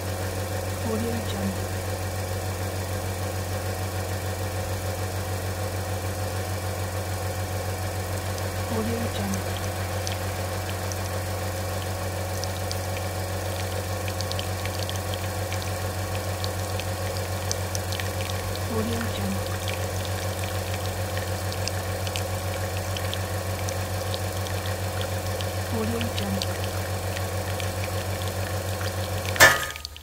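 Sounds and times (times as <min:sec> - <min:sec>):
espresso machine pump humming: 0:00.0 - 0:30.0
liquid trickling: 0:06.6 - 0:30.0.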